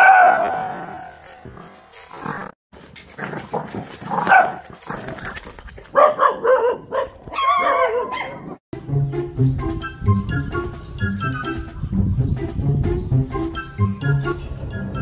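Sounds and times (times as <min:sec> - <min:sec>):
dog barking and yelping: 0:00.0 - 0:00.8, 0:04.2 - 0:04.6, 0:05.9 - 0:08.6.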